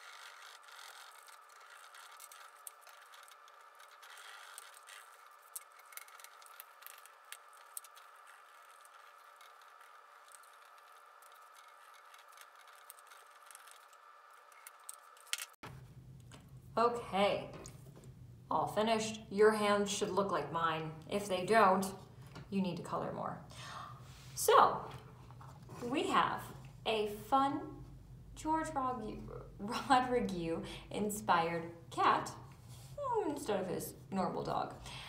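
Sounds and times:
small clicks and ticks: 0.0s - 15.6s.

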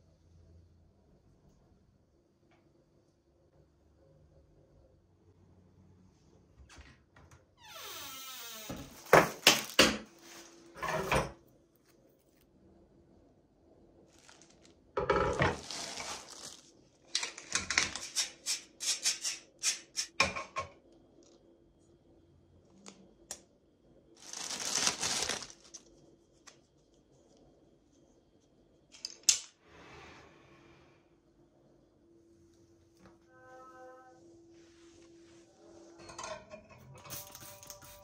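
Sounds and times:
plastic packaging rustling: 14.1s - 18.2s, 24.2s - 26.0s.

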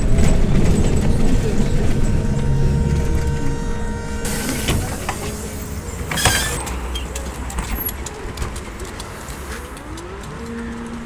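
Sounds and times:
low rumble of street noise: 0.0s - 11.0s
trolleybus electric motor whine: 0.0s - 11.0s.

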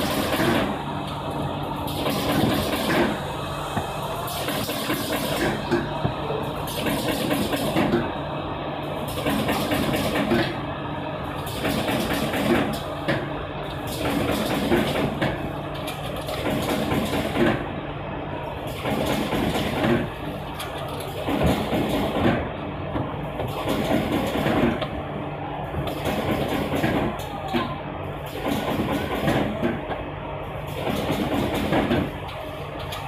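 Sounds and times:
machine motor hum: 0.0s - 33.0s
mechanical knocks and clatter: 1.9s - 8.1s, 9.0s - 10.6s, 11.4s - 17.7s, 18.7s - 25.0s, 25.8s - 27.7s, 28.3s - 30.0s, 30.7s - 32.2s.

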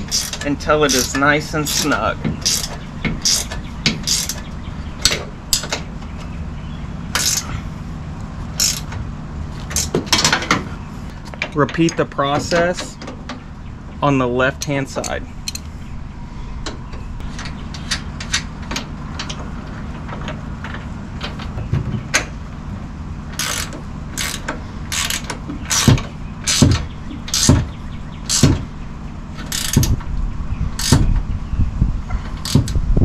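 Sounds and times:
ratchet wrench clicking: 0.0s - 4.4s, 7.1s - 7.5s, 8.6s - 9.0s, 15.0s - 15.7s, 23.3s - 27.6s, 28.3s - 28.6s, 29.4s - 30.0s, 30.8s - 31.0s, 32.4s - 32.8s
steady low hum: 0.0s - 33.0s.

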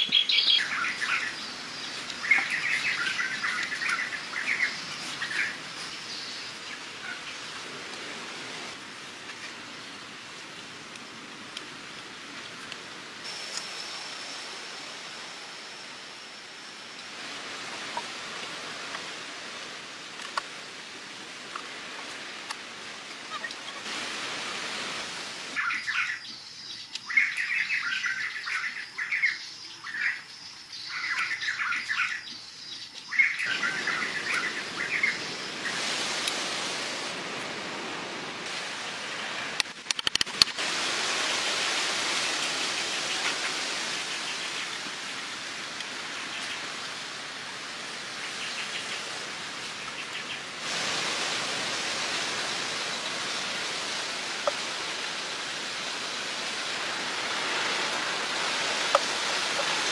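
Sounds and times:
birds chirping: 0.0s - 7.5s, 25.6s - 35.9s
outdoor hiss: 0.0s - 59.9s.

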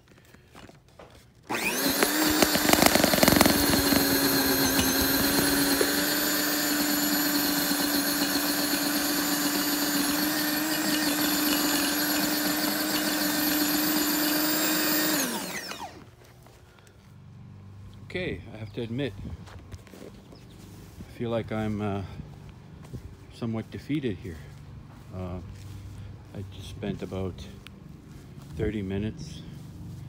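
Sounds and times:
electric tiller whining: 1.4s - 18.1s
tiller clattering knocks: 1.5s - 15.0s.

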